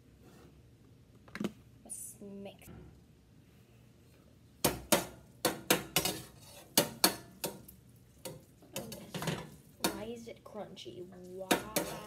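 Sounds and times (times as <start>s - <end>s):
spoon clinking against metal pot: 11.5s - 12.0s.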